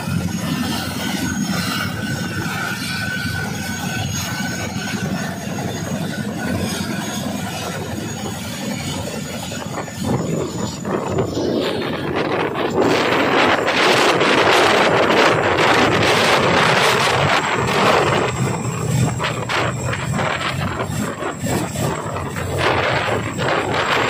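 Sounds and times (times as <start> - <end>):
helicopter rotors rumbling: 0.0 - 24.0
high turbine whine: 0.0 - 24.0.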